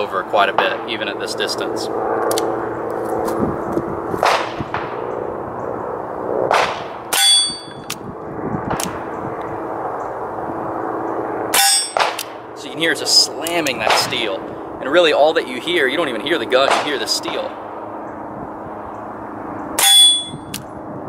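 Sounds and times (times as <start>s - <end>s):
low hum: 0.0s - 21.0s
muffled gunshots: 4.2s - 5.0s, 6.5s - 7.1s, 11.6s - 12.4s, 16.6s - 17.5s
bullet clanging steel target: 7.1s - 8.0s, 11.6s - 12.3s, 19.8s - 20.6s.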